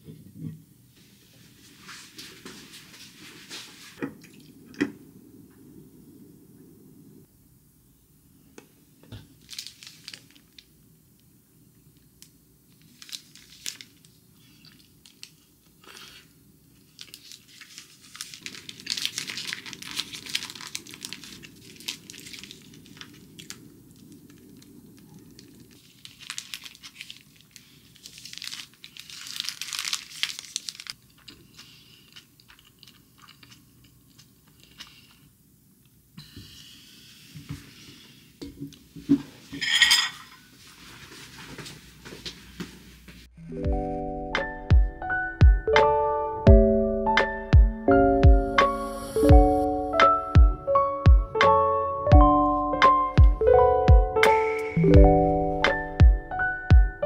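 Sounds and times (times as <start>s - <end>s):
paper wrapper crinkling and tearing: 9.3s - 10.7s, 12.7s - 34.7s.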